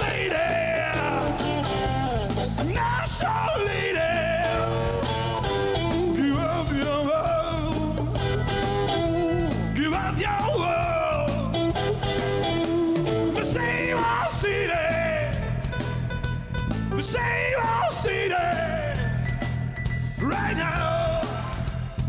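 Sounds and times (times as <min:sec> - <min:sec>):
man singing lead: 0:00.0 - 0:02.0, 0:02.6 - 0:08.2, 0:09.4 - 0:11.8, 0:12.9 - 0:15.8, 0:16.9 - 0:19.2, 0:20.2 - 0:22.0
drums: 0:00.0 - 0:22.0
electric guitars: 0:00.0 - 0:22.0.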